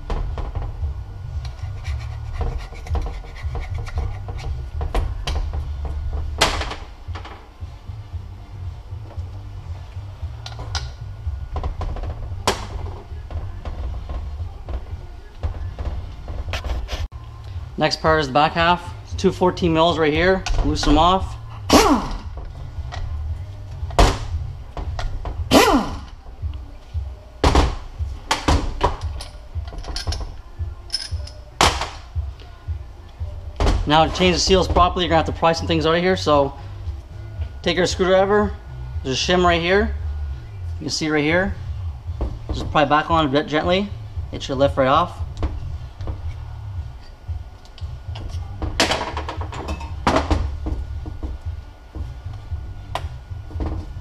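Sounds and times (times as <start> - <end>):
metal parts knocking and clunking: 27.4 - 32.0, 48.1 - 52.2
metal tools clanking: 28.9 - 31.5.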